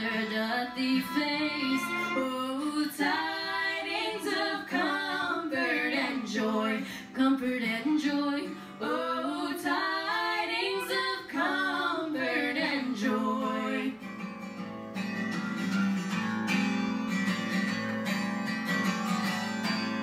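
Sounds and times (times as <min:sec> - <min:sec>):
strummed acoustic guitar: 0:00.0 - 0:09.5, 0:10.5 - 0:20.0
fiddle: 0:00.0 - 0:12.9
women singing: 0:00.0 - 0:14.1.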